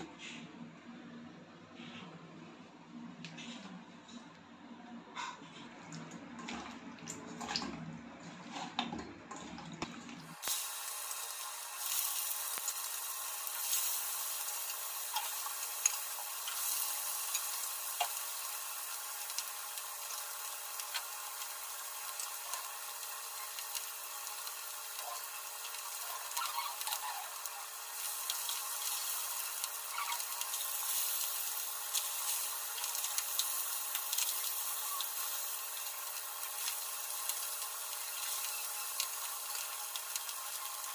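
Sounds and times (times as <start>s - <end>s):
fish sizzling in oil: 10.2s - 40.9s.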